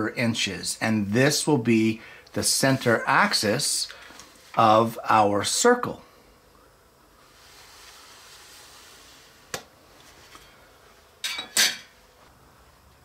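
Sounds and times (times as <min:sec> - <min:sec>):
hand tools clattering: 0:11.2 - 0:11.9.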